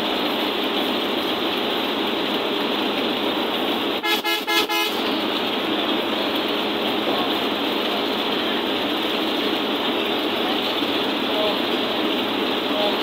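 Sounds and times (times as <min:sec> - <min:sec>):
bus road and engine noise: 0:00.0 - 0:13.0
horn toots: 0:04.0 - 0:05.2.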